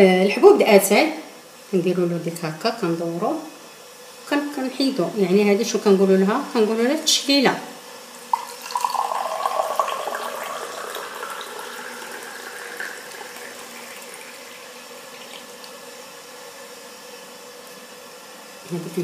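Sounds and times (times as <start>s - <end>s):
tea pouring into glass: 8.3s - 15.8s.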